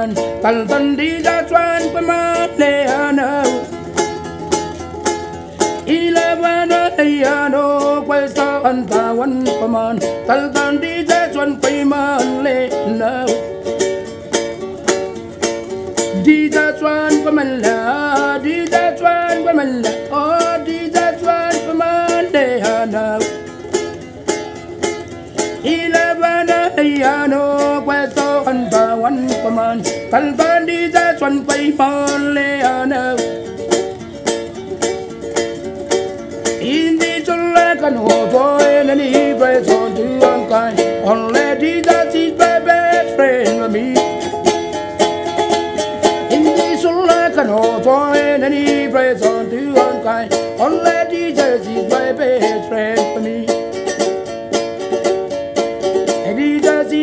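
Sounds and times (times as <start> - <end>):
ukulele strumming: 0.0 - 57.0.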